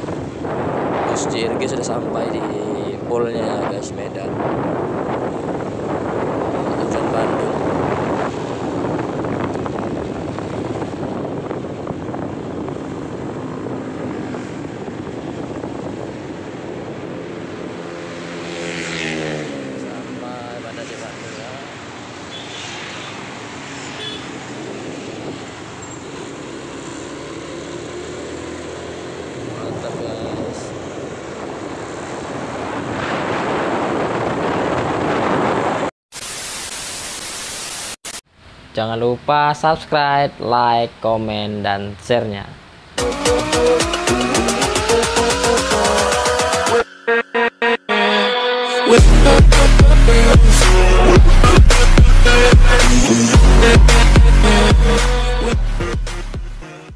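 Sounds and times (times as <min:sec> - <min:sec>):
vehicle engine and road noise: 0:00.0 - 0:35.9, 0:48.9 - 0:56.9
tv static hiss: 0:36.1 - 0:38.2
pitched engine hum: 0:49.0 - 0:56.6.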